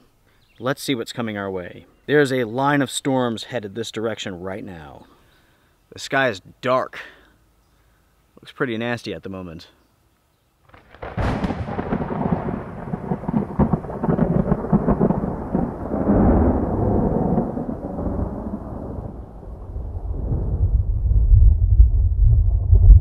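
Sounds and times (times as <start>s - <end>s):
rolling thunder rumble: 10.7s - 23.0s
thunder crack: 10.7s - 23.0s.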